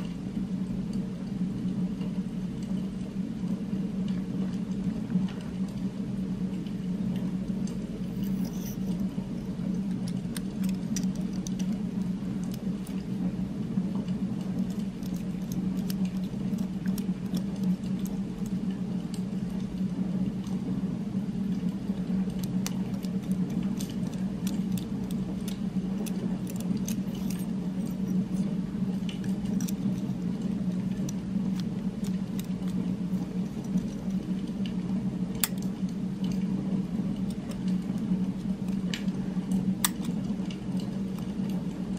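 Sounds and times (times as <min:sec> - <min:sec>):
low droning hum: 0:00.0 - 0:41.9
pen metal parts clicking: 0:08.1 - 0:09.1, 0:09.7 - 0:13.0, 0:14.5 - 0:18.5, 0:22.3 - 0:28.5, 0:29.1 - 0:34.2, 0:39.8 - 0:40.2.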